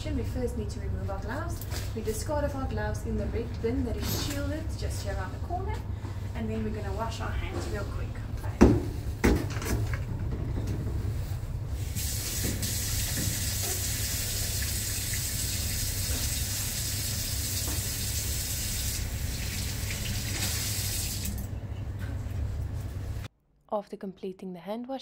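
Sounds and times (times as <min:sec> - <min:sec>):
hands washing under water: 0:11.8 - 0:21.5
tap water running into sink: 0:12.0 - 0:21.5.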